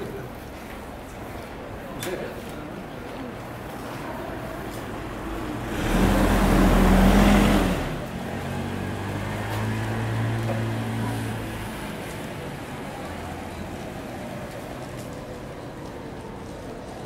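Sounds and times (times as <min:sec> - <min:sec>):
vehicle passing close by: 0:05.3 - 0:12.7.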